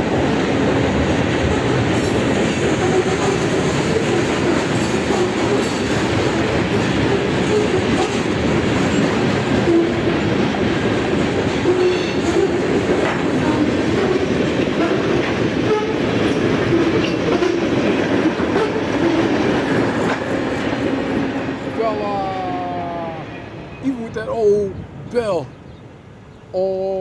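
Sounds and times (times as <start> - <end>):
freight train wheels on rails: 0.0 - 25.1.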